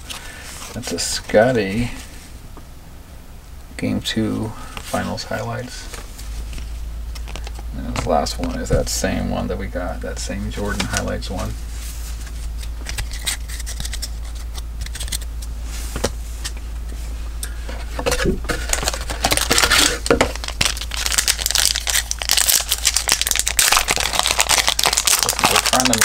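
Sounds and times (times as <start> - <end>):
cards being handled: 12.0 - 17.0
wrapper crinkling: 18.5 - 26.0.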